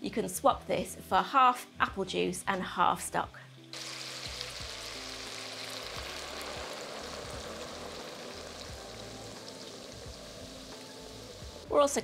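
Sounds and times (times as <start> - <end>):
liquid sizzling in a hot pan: 3.0 - 12.0.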